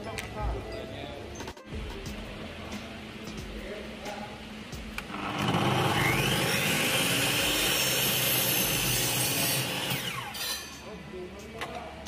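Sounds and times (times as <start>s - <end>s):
miter saw motor whining: 5.1s - 10.6s.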